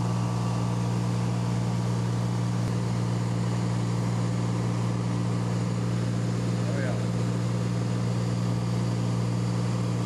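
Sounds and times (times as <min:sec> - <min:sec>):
aircraft engine drone: 0:00.0 - 0:10.0.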